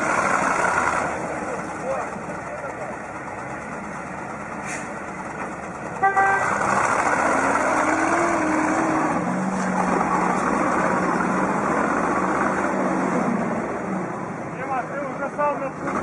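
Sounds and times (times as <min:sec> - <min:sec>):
truck engines straining: 0:00.0 - 0:16.0
horn toot: 0:06.0 - 0:06.7.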